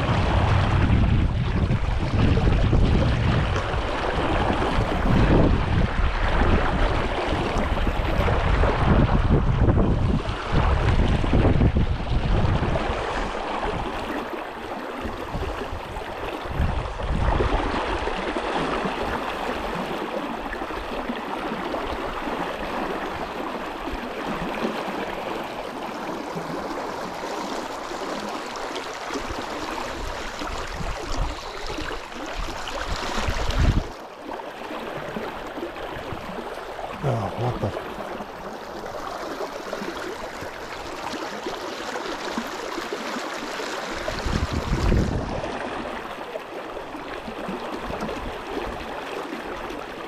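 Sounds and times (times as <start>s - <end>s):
wind rumbling on microphone: 0.0s - 27.1s, 29.1s - 34.0s, 43.9s - 46.1s
brook water flowing: 0.0s - 50.0s.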